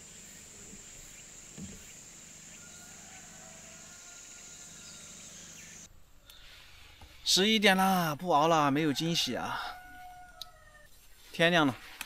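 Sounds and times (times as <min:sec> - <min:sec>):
high-pitched insect drone: 0:00.0 - 0:05.9.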